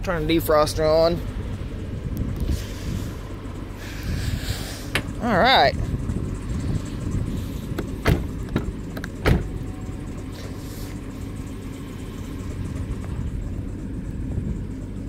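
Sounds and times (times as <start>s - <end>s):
car engine idling: 0.0s - 15.0s
sharp knocks: 7.8s - 9.5s.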